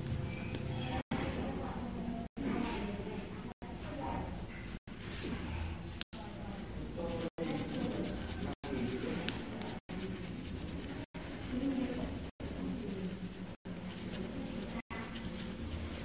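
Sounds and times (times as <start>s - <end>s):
colored pencil scratching on paper: 7.0s - 16.0s.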